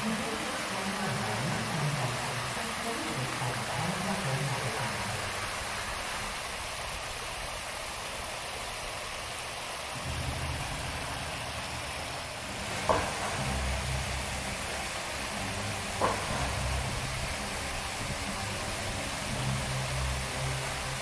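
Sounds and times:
fountain water rushing: 0.0 - 21.0.

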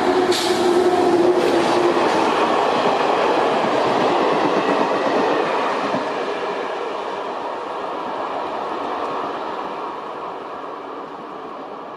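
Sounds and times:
electric locomotive humming: 0.0 - 11.9
train wheels on rails: 0.0 - 11.9.

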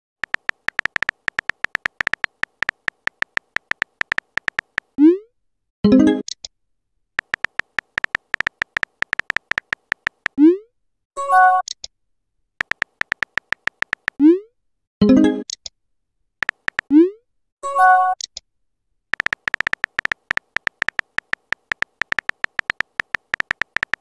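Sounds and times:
rapid keyboard typing clicks: 0.2 - 5.0, 7.2 - 10.4, 12.6 - 14.2, 16.4 - 16.9, 19.1 - 24.0.

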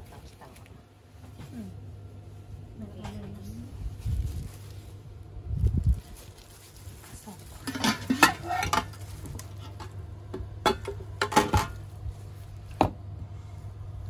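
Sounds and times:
metal lid and ladle clinking: 7.6 - 9.0, 10.6 - 11.8.

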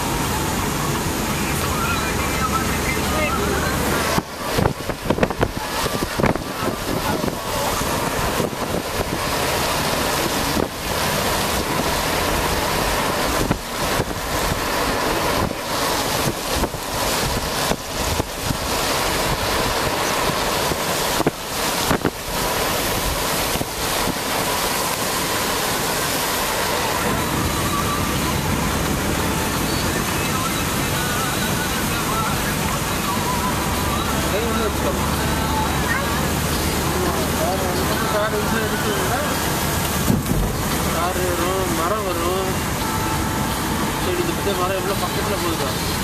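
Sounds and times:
wind buffeting microphone: 3.3 - 34.2, 39.4 - 41.0.

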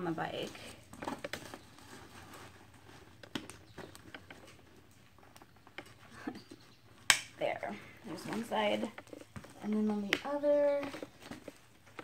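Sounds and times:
strap rustling and clicking: 0.4 - 7.3.

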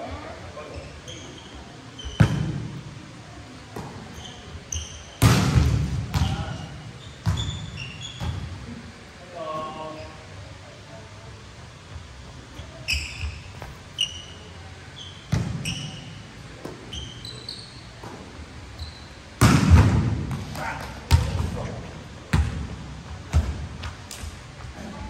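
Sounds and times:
shoes squeaking on court floor: 0.1 - 2.5, 3.8 - 5.2, 6.1 - 8.6, 12.2 - 19.4
volleyballs spiked and bouncing: 5.2 - 6.5, 19.4 - 21.6, 22.3 - 24.4.

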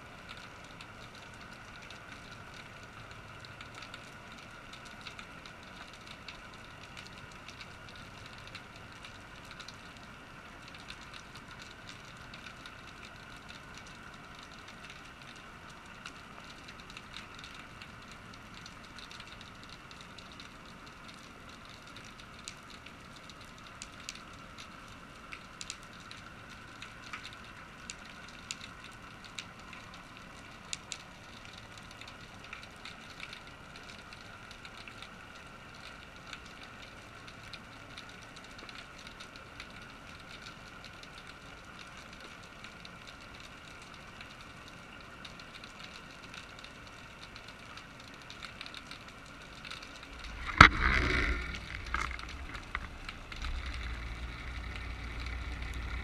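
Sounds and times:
small clicks and ticks: 0.0 - 56.0
low underwater hiss: 49.3 - 56.0
faint hum: 49.7 - 56.0.

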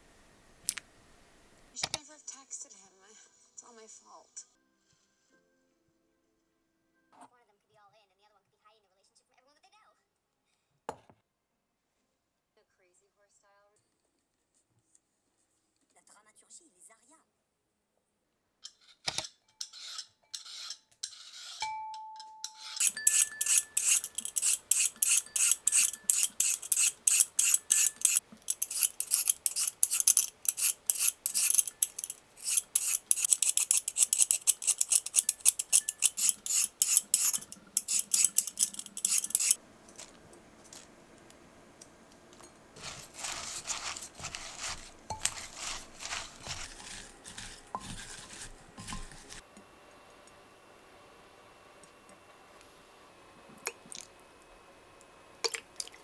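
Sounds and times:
peeler scraping carrot: 18.6 - 21.6, 22.5 - 40.1, 42.8 - 49.4
carrot ribbons rustling in bowl: 42.8 - 49.4.

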